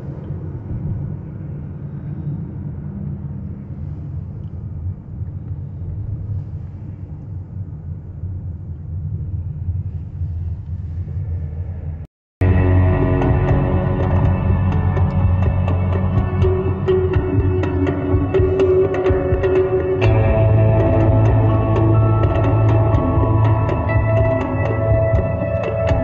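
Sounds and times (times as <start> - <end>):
music: 12.4 - 26.0.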